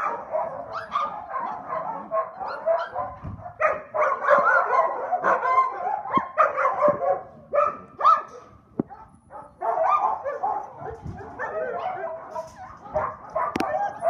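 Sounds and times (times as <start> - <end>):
puppies yipping and whining: 0.0 - 3.6, 8.9 - 14.0.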